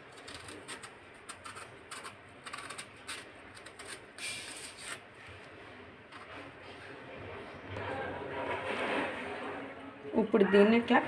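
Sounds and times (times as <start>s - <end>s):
knife scraping plantain peel: 0.0s - 5.1s.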